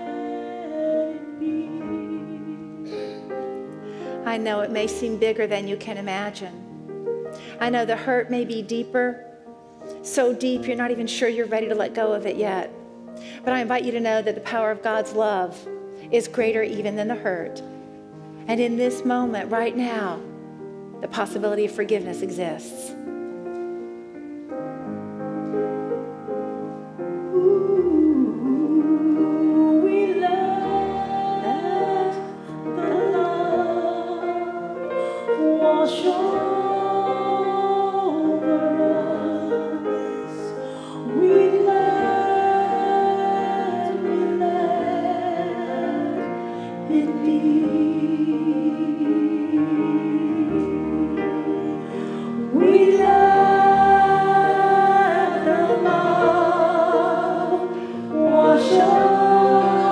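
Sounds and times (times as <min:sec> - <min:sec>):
woman singing: 0:00.0 - 0:03.2, 0:27.2 - 0:59.9
keyboard chords: 0:00.0 - 0:07.7, 0:17.7 - 0:59.9.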